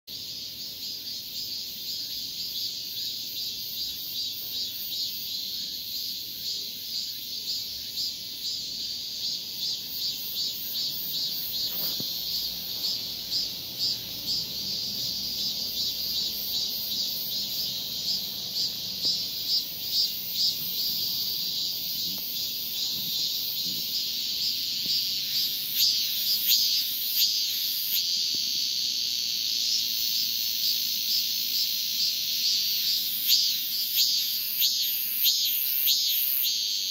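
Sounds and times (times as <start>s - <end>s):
cicada buzzing: 0.1s - 36.9s.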